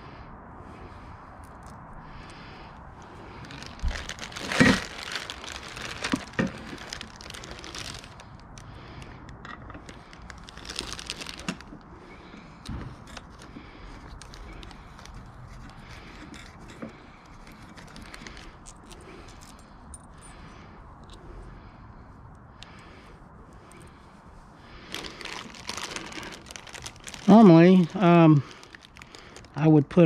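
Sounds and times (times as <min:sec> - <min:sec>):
plastic wrapping crinkling: 0:03.4 - 0:08.7, 0:09.8 - 0:19.6, 0:24.9 - 0:29.6.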